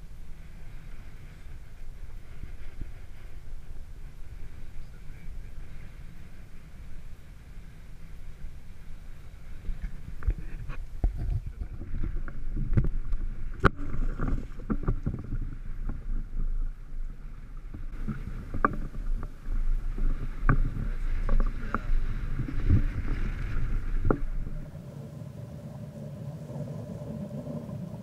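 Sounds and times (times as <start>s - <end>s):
water slapping boat hull: 0.0s - 24.9s
wind rumble on microphone: 0.0s - 28.0s
knocks and splashes: 11.0s - 16.4s.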